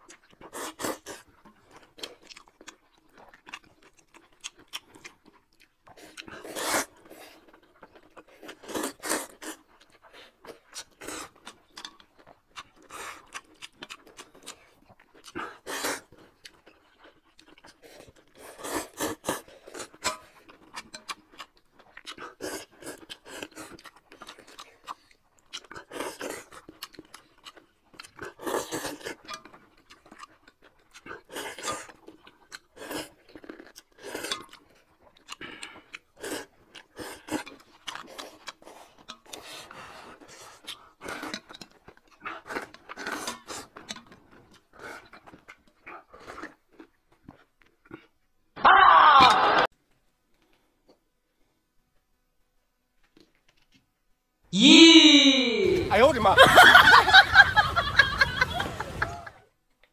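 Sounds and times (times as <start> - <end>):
chewing: 0.0 - 48.4
people slurping noodles: 5.9 - 7.5, 8.3 - 9.7, 15.3 - 16.2, 17.7 - 20.2, 25.7 - 26.7, 28.2 - 29.4, 32.7 - 34.6, 35.3 - 44.0.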